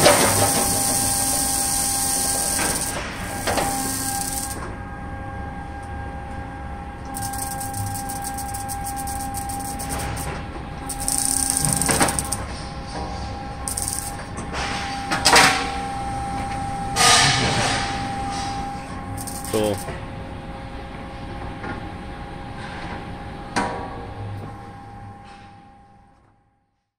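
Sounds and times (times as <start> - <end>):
plate rolling machine running: 0.0 - 4.7, 7.1 - 10.3, 10.9 - 12.5, 13.6 - 18.6, 19.2 - 19.9.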